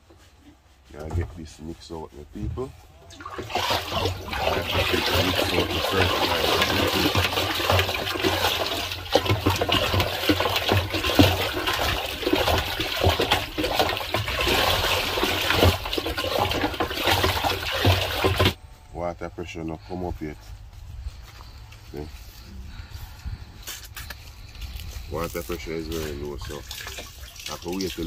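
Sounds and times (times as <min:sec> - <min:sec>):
water sloshing in a drum: 0:00.0 - 0:18.6, 0:24.7 - 0:28.0.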